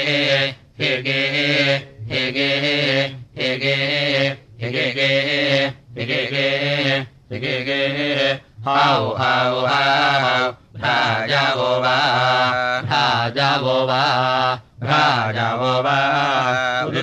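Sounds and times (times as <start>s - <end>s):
low-voiced chanting: 0.0s - 17.0s.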